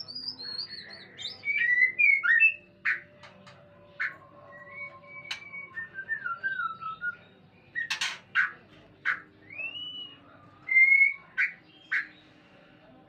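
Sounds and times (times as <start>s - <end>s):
harsh bird chattering: 3.9s - 4.2s, 7.7s - 9.8s, 10.7s - 12.2s
bird whistling calls: 4.0s - 7.2s, 7.8s - 12.1s.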